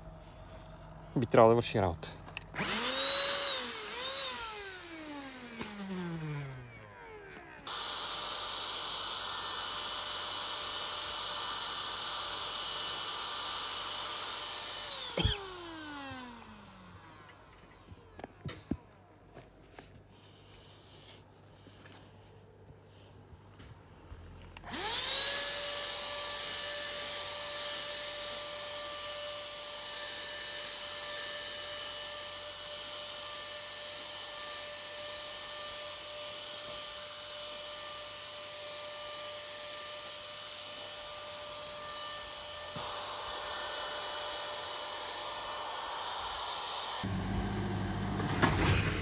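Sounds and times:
paint spray gun motor whine: 2.1s - 23.1s, 23.9s - 49.0s
rush of air spraying: 42.8s - 47.1s.

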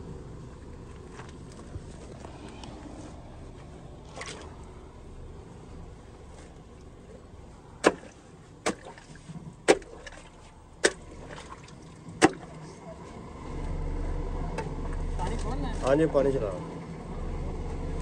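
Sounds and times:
low steady rumble: 0.0s - 18.0s
hatchet chopping earth: 7.8s - 9.0s, 9.6s - 10.1s, 10.8s - 11.0s.

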